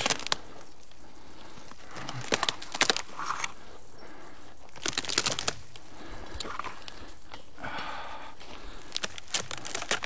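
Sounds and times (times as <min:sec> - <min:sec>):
footsteps crunching dry leaves: 0:00.0 - 0:00.5, 0:08.7 - 0:10.0.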